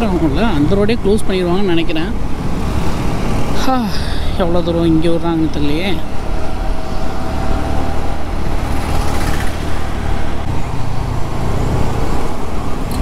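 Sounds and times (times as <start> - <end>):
scooter engine running: 5.7 - 13.0.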